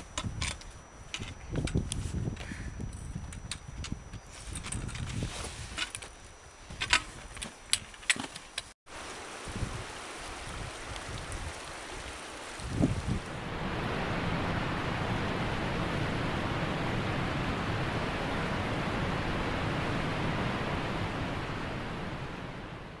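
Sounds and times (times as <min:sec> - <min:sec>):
steady rushing noise: 0:13.1 - 0:23.0.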